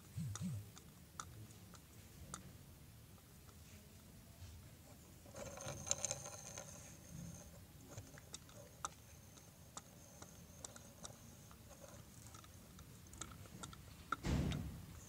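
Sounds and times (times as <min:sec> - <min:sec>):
plastic toys clicking: 0:07.9 - 0:15.0.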